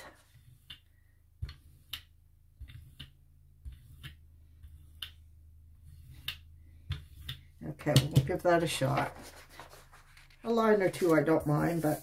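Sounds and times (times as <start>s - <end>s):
paint roller sticky clicks: 0.4s - 5.2s.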